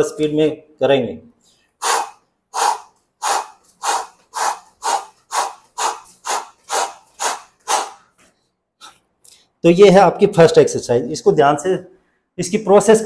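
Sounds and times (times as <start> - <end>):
man exhaling forcefully: 1.8 - 8.1.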